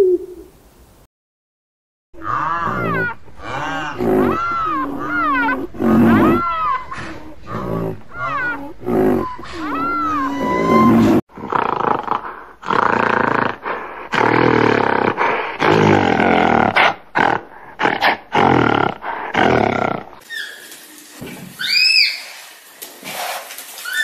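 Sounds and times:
gorilla whining call: 2.2 - 11.2, 21.6 - 22.3
gorilla roaring: 2.2 - 20.2.

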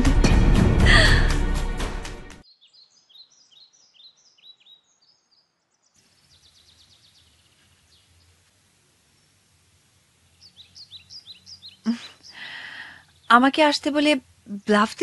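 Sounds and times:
music: 0.0 - 2.4
birds chirping: 2.4 - 15.0
faint outdoor hiss: 2.4 - 15.0.

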